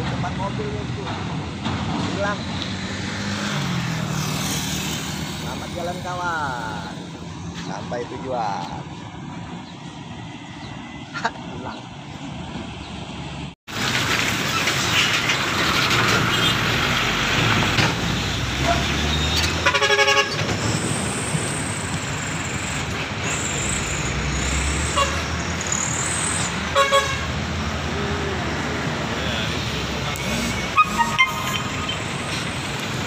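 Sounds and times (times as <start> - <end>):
traffic engine and tyre noise: 0.0 - 33.0
horn pulsing beeps: 23.3 - 25.9, 30.1 - 32.5.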